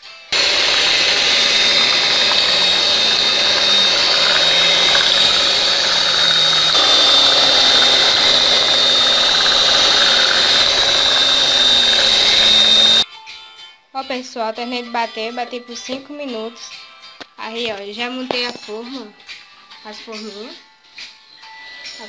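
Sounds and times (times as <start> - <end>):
hand mixer whisking batter: 0.4 - 13.0.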